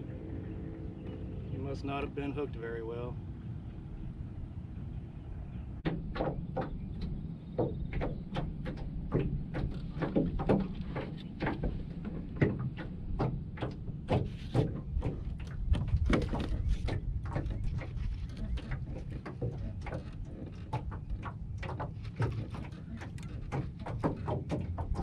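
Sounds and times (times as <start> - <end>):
waves slapping boat hull: 5.8 - 25.0.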